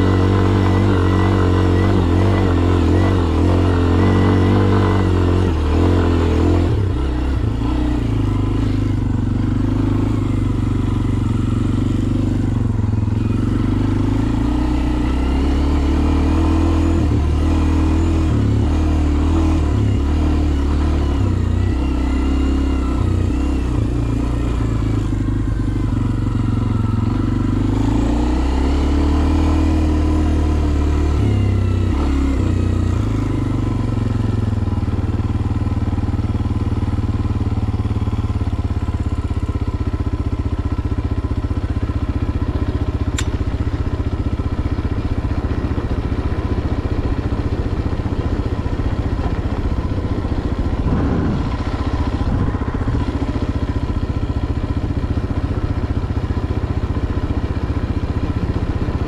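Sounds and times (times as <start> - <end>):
dirt bike engine revving: 0.0 - 39.2, 42.6 - 59.0
sharp tick: 43.1 - 43.5.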